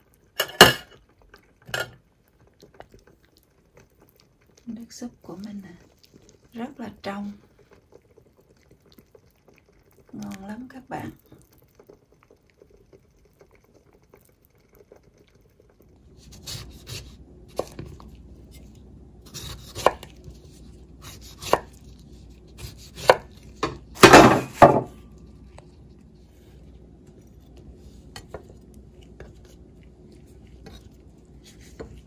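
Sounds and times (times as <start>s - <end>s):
knife chopping on wooden board: 19.3s - 20.1s, 21.0s - 21.8s, 22.6s - 24.9s.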